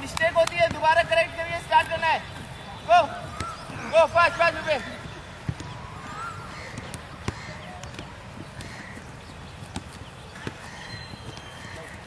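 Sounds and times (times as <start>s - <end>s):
football kick thuds: 5.4s - 5.8s.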